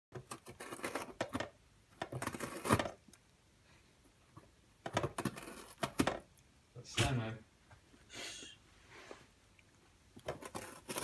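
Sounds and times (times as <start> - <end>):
cat tearing cardboard with teeth: 0.1 - 3.0, 4.9 - 6.2, 10.2 - 11.0.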